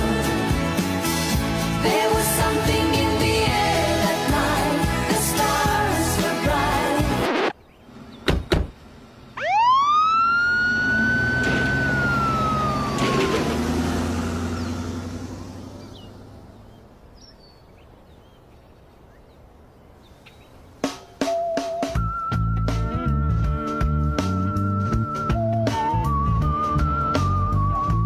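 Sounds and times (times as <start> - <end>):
low engine rumble: 0.0 - 18.5
ambulance siren wailing: 9.4 - 15.9, 24.6 - 28.0.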